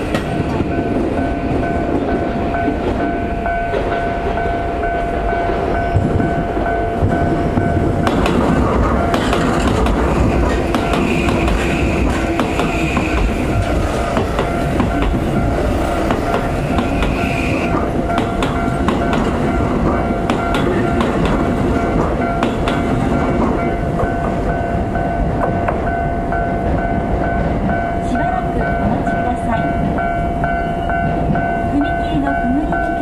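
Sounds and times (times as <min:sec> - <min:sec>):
crossing warning bells ringing: 0:00.0 - 0:33.0
train wheels clacking over rail joints: 0:05.9 - 0:24.6.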